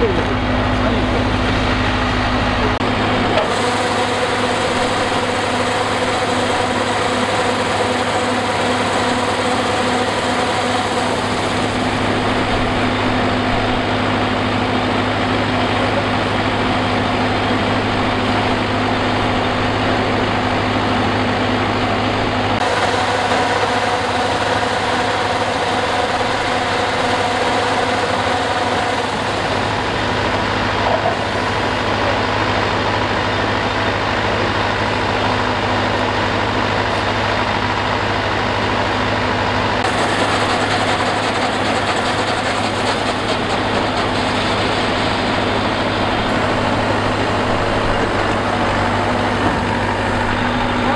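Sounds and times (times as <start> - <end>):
combine harvester engine hum: 0.0 - 50.9.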